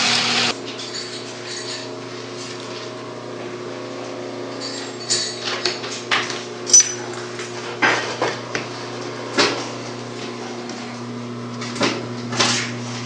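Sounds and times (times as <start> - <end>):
sewing machine motor humming: 0.0 - 0.6.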